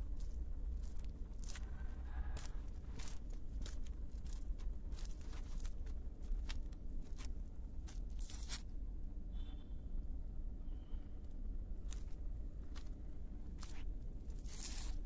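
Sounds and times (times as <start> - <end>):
footsteps crunching on brick path: 0.2 - 5.8.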